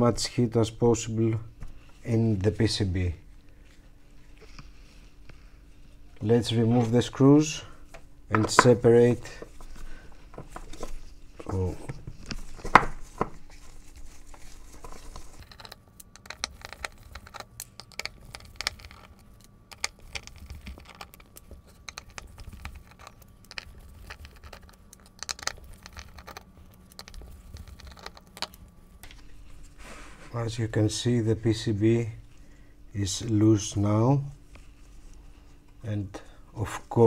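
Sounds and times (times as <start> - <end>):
small metal clicks and ticks: 15.4 - 28.7.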